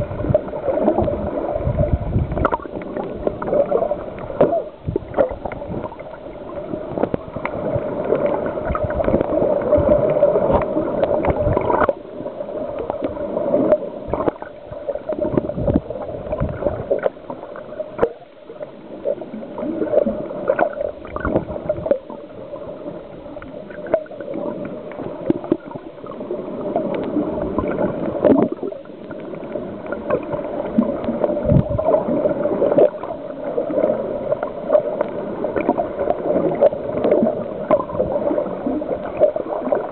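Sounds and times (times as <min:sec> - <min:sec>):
underwater gurgling and bubbling: 0:00.0 - 0:39.9.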